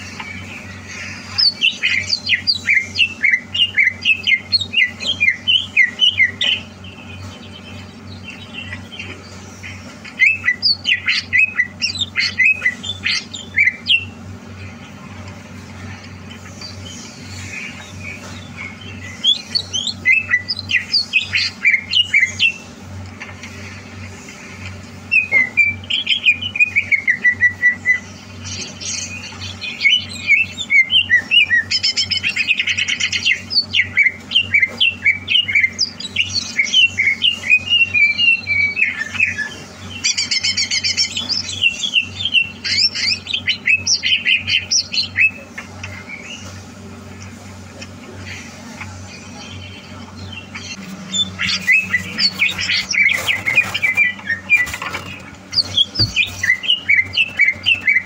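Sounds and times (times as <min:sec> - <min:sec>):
bird singing chirps and whistles: 0:00.0 - 0:14.2, 0:16.6 - 0:22.7, 0:25.1 - 0:45.4, 0:49.0 - 0:58.0
steady low hum: 0:00.0 - 0:58.0.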